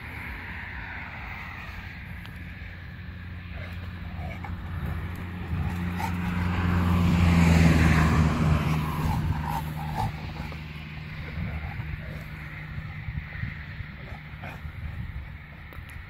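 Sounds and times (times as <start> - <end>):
vehicle passing by: 0.0 - 16.0.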